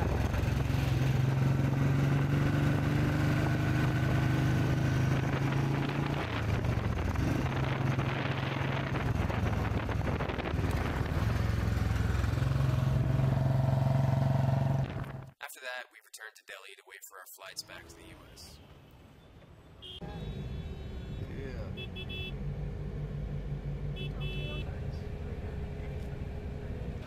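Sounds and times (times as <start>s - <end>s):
motorcycle engine running: 0.0s - 15.3s.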